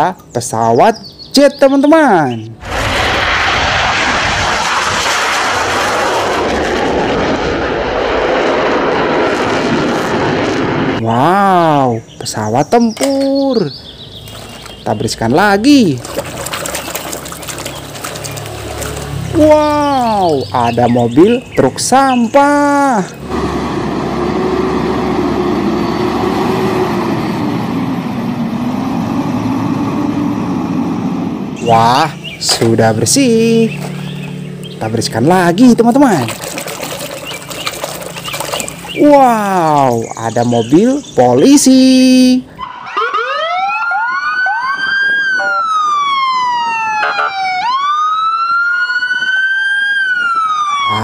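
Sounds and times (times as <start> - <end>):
fighter jet passing low: 2.6 - 11.0, 23.0 - 41.1
diesel truck engine running: 23.2 - 31.6, 33.3 - 35.4.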